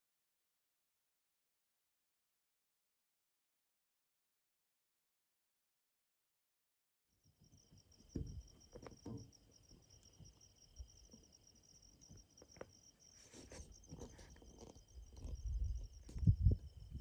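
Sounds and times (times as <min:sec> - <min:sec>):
insects chirring: 0:07.2 - 0:17.0.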